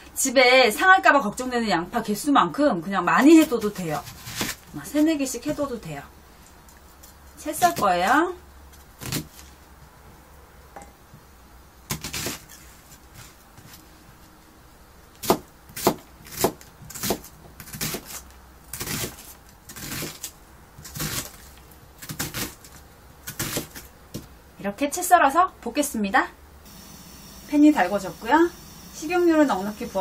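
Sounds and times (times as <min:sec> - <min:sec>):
knife slicing onion: 0:03.2 - 0:05.1, 0:11.9 - 0:13.4, 0:15.2 - 0:24.3.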